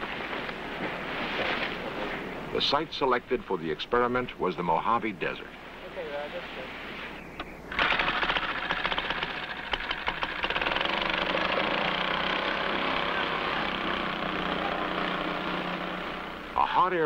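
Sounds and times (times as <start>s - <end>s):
small engine running: 7.7s - 16.6s.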